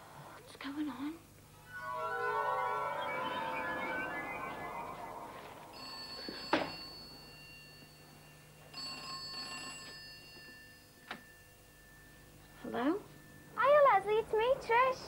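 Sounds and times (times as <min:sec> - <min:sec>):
telephone ringing: 0:01.6 - 0:11.0.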